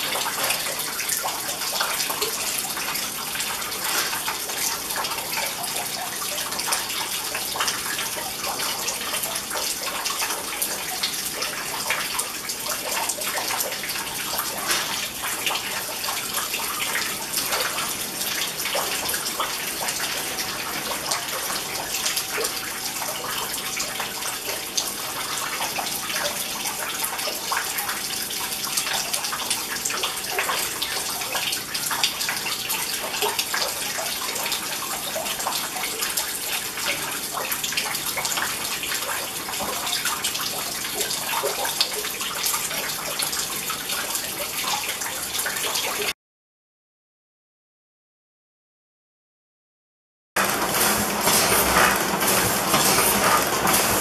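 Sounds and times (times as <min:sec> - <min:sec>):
water fountain splashing: 0:50.4 - 0:54.0.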